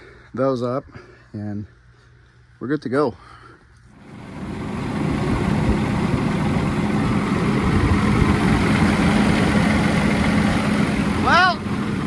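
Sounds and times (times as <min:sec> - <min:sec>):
diesel engine idling: 0:03.9 - 0:12.0.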